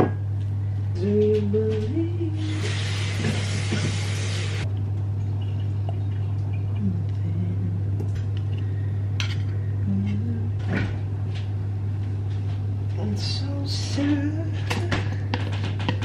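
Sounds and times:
low electrical hum: 0:00.0 - 0:16.0
hiss: 0:02.4 - 0:04.6.

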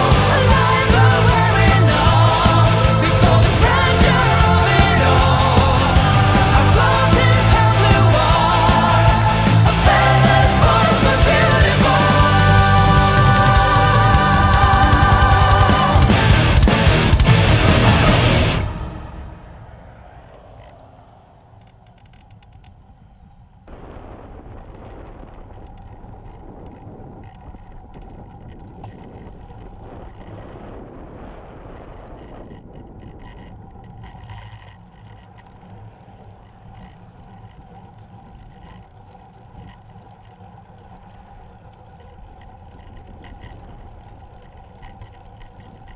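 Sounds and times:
wind rushing over microphone: 0:00.0 - 0:34.5
bicycle tyre and road noise: 0:00.0 - 0:45.9.

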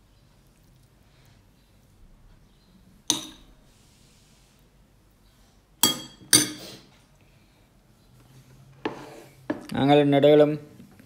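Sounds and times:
metal spoon clinking on glass: 0:03.1 - 0:03.4, 0:05.8 - 0:06.6.

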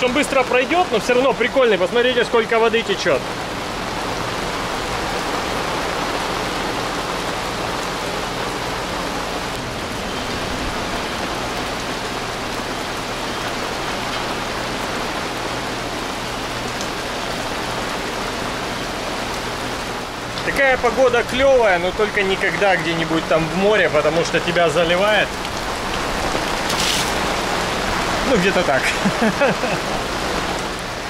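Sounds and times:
heavy rain pouring onto water: 0:00.0 - 0:31.0.

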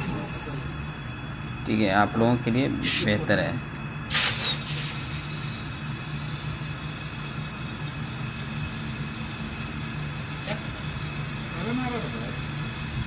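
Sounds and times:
low hum: 0:00.0 - 0:09.8
liquid spraying from pipe hiss: 0:04.1 - 0:12.8.

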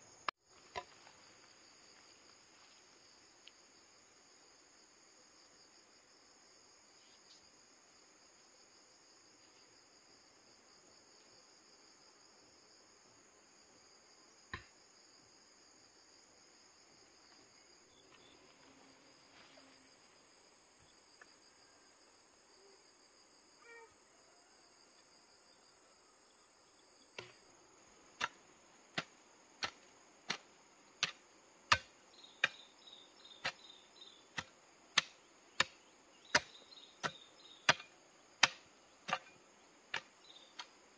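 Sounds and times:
insects droning: 0:00.0 - 0:40.9
hand hoe chopping dry soil: 0:00.6 - 0:01.1, 0:28.2 - 0:32.6, 0:33.4 - 0:33.6, 0:34.3 - 0:40.8.

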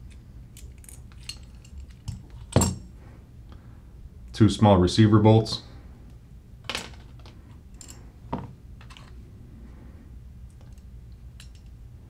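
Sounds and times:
small metal parts clicking: 0:00.0 - 0:02.7, 0:10.5 - 0:11.8.

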